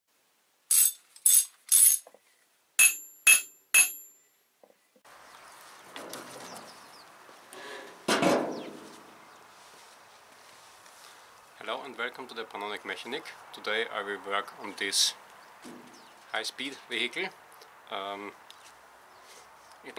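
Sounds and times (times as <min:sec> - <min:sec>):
faint outdoor background noise: 0:00.1 - 0:19.9
sharp ringing clinks: 0:02.8 - 0:04.2.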